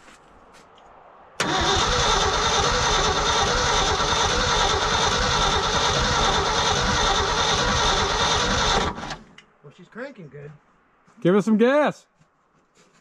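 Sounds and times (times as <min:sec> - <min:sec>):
starter cranking engine: 0:01.4 - 0:09.2.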